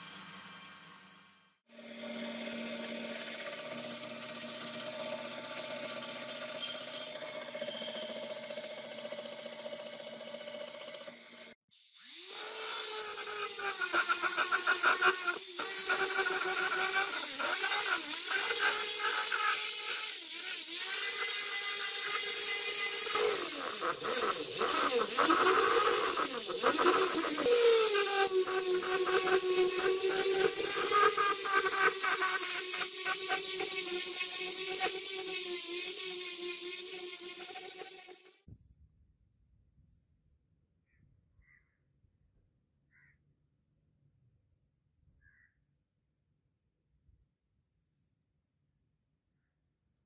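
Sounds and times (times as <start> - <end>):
bandsaw cutting wood: 1.7 - 38.4
orbital sander whining: 1.8 - 38.4
sanding hiss on wood: 12.7 - 38.4.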